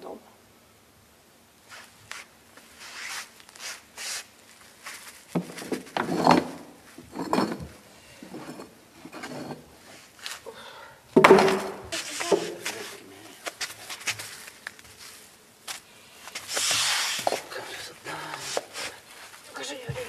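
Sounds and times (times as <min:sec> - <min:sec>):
stones knocking and clattering: 0:05.3 - 0:09.6, 0:11.2 - 0:11.8.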